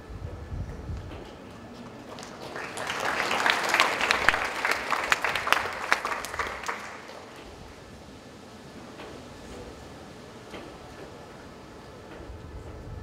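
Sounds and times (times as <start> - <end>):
audience applauding: 1.8 - 7.6.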